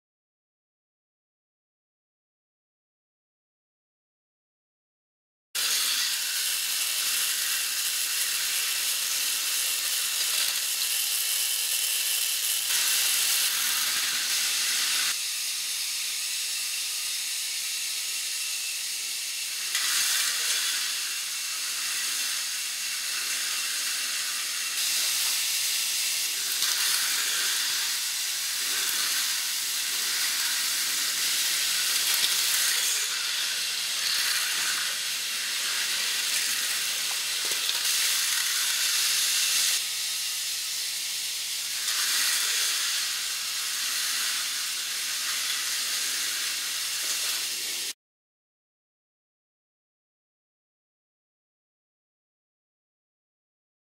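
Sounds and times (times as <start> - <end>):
toy coaster rolling on plastic track: 5.6 - 48.0.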